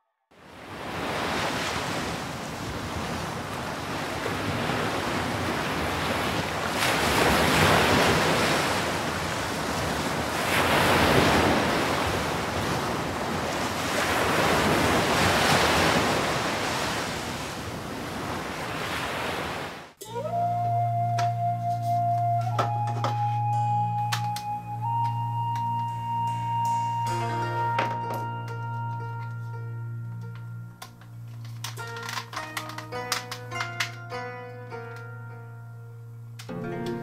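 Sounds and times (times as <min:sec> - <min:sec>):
ocean waves washing in: 0:00.4 - 0:20.0.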